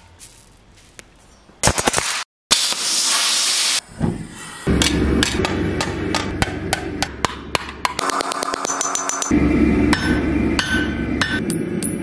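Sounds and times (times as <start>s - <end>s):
hammer striking hot steel on anvil: 4.7s - 12.0s
low steady rumble: 9.3s - 12.0s.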